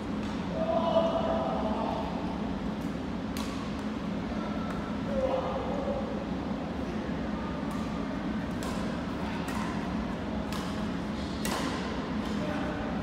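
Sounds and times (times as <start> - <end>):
steady low hum: 0.0 - 13.0
rackets hitting shuttlecock: 3.3 - 3.9, 7.7 - 12.4.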